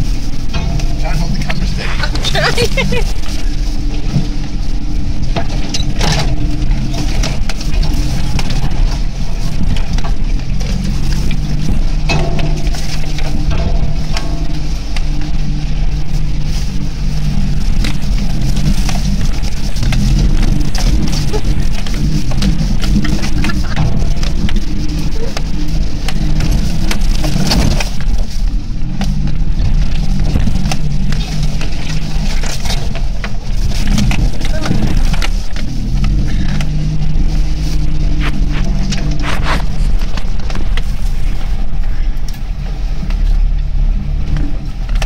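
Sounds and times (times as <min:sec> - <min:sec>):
knocks and rattles of vehicle jolting: 0:00.0 - 0:45.0
vehicle engine running at low revs: 0:00.0 - 0:45.0.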